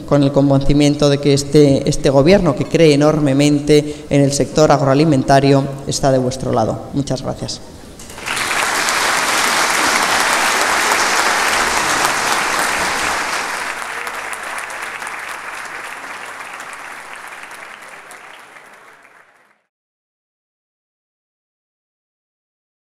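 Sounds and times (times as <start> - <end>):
audience applauding: 8.0 - 19.7.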